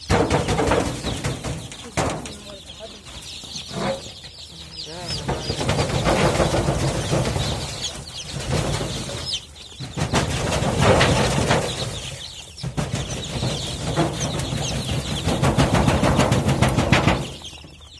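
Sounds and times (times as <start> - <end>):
chicks peeping: 0.0 - 17.9.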